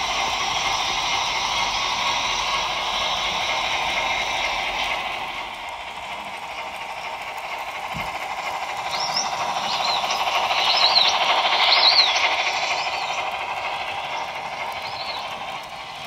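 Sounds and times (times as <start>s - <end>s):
model train rolling on track: 0.0s - 16.0s
model train steam chuff: 0.0s - 16.0s.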